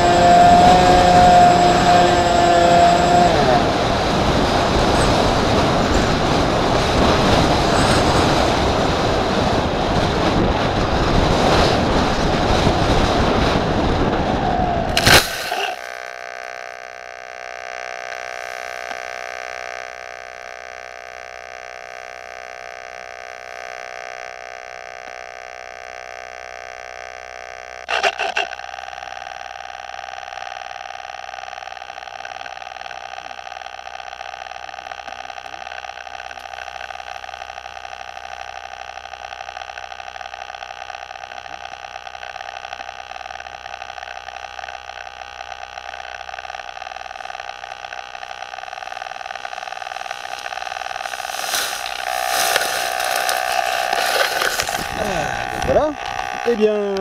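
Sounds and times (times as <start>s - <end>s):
electrical whine: 0.0s - 57.0s
short loud crackle: 14.9s - 16.2s.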